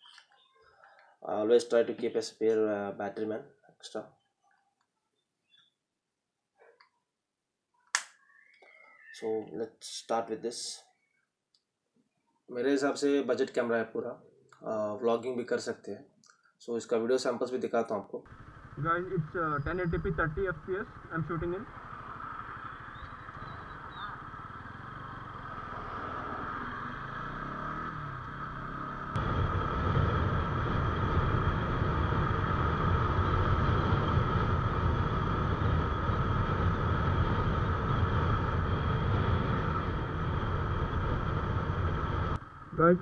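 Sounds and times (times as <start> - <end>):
motorcycle engine running: 18.3 - 42.9
wind and road noise: 18.3 - 43.0.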